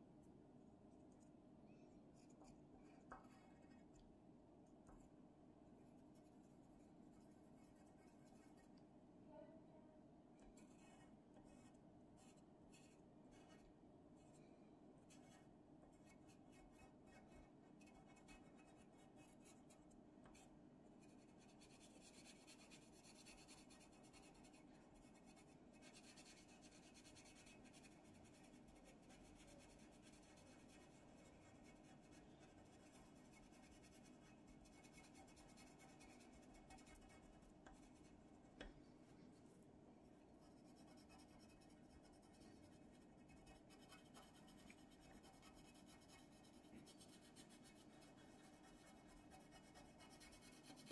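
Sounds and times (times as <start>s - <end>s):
faint steady hum: 0.0s - 50.9s
pencil scratching on paper: 10.5s - 13.6s, 15.1s - 38.2s, 40.4s - 50.9s.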